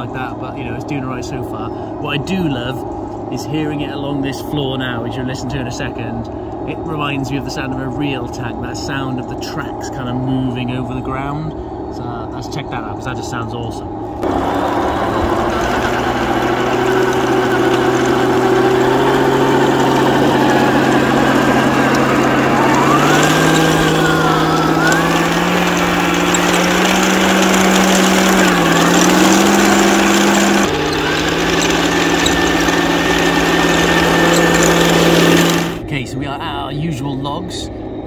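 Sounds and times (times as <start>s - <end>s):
simulated engine drone: 0.0s - 38.0s
toy tank tracks clattering on gravel: 15.2s - 35.8s.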